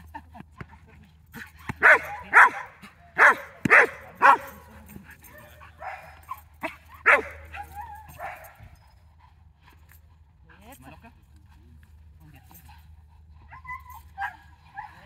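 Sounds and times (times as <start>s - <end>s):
dog barking excitedly: 1.8s - 4.7s, 5.4s - 8.6s.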